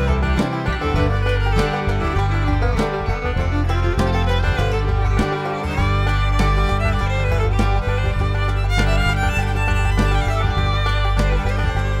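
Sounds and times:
bluegrass fiddle and guitar music: 0.0 - 12.0.

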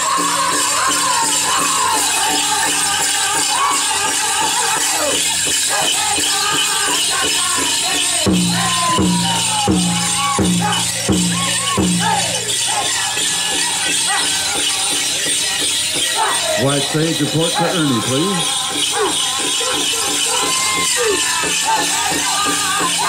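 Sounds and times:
dancers' bells jingling: 0.0 - 23.0
high voices singing: 0.0 - 23.0
big drum beating: 8.2 - 13.0.

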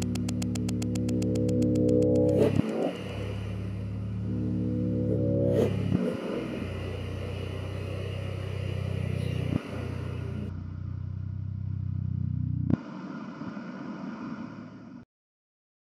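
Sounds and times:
click: 0.0 - 3.0
low drone of deep tones: 0.0 - 15.0
hiss: 6.0 - 10.5, 12.8 - 15.0.

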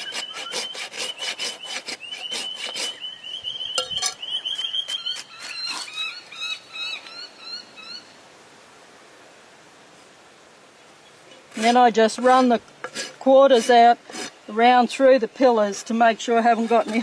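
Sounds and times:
rasp filing a hoof: 0.0 - 3.0, 4.8 - 6.0, 11.5 - 14.4, 15.7 - 17.0
bird chirping: 0.0 - 8.2
faint hiss: 5.5 - 16.9.

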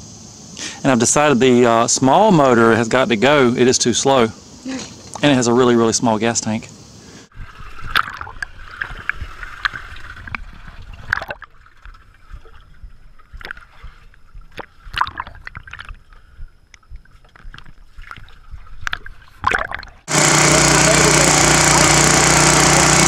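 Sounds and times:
water splashes: 4.7 - 5.6, 7.3 - 20.2
river water sloshing and gurgling: 7.3 - 20.1
water lapping against drums: 7.3 - 20.1.

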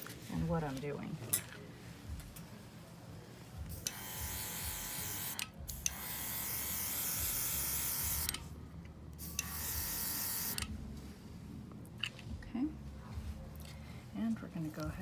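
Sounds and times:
electric compressor hum: 3.6 - 13.5.

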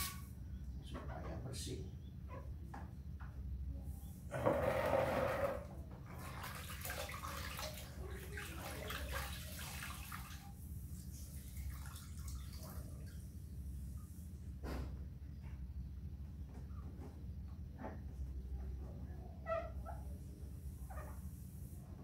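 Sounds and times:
low steady hum: 0.0 - 22.0
cloth rinsed and wrung in water: 5.7 - 13.4
water dripping: 6.2 - 13.3.

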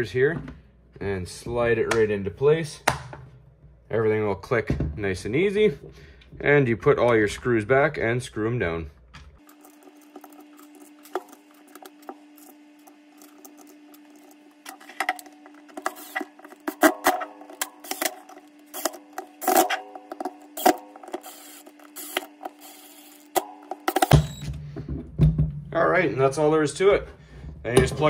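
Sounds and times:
cordless drill humming: 9.4 - 24.6.

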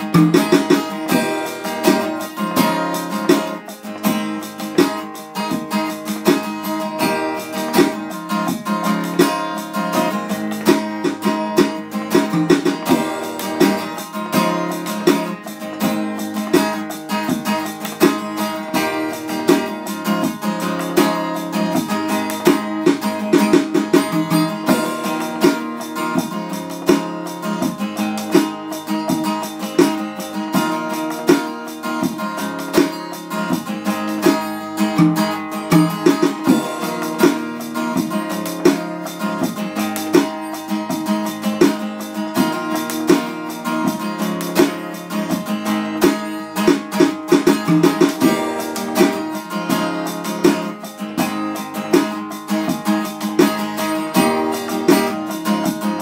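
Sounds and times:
acoustic guitar playing: 0.0 - 56.0.

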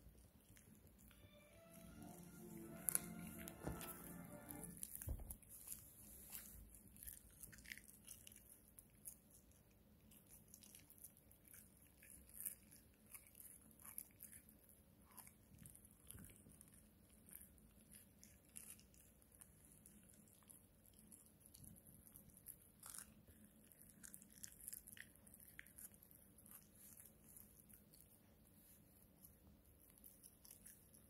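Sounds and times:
dog gnawing chew stick: 0.0 - 31.0.

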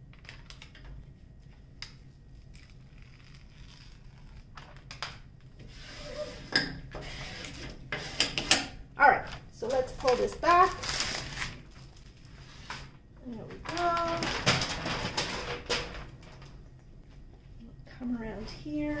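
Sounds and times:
paper crinkling and crackling: 0.0 - 5.2, 9.2 - 16.8.

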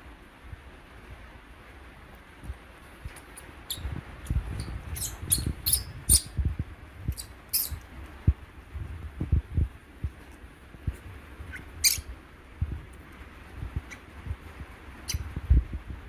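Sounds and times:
baby monkey squeaking: 3.7 - 3.9, 4.6 - 6.4, 7.1 - 7.8, 11.5 - 12.1, 15.0 - 15.3.

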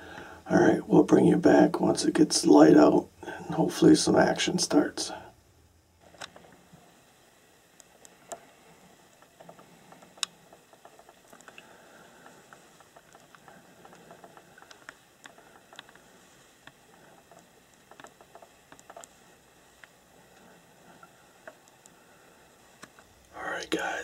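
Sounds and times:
light rustling: 6.0 - 23.2
faint small clicks: 7.7 - 22.0.

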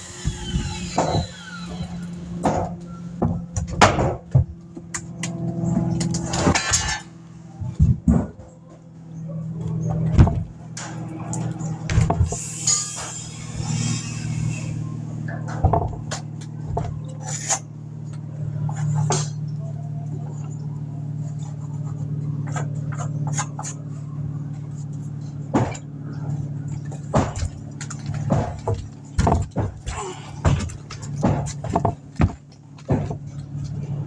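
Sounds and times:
low machine hum: 0.0 - 34.0
wooden boards knocking and scraping: 2.4 - 4.5, 7.6 - 8.5, 9.9 - 10.5, 11.9 - 12.4, 15.4 - 17.6, 26.8 - 33.8.

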